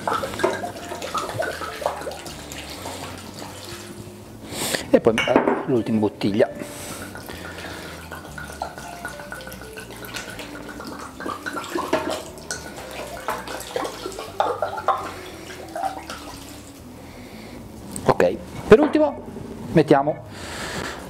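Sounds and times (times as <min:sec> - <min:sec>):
liquid splashing into metal tray: 0:00.0 - 0:03.9, 0:07.0 - 0:16.7.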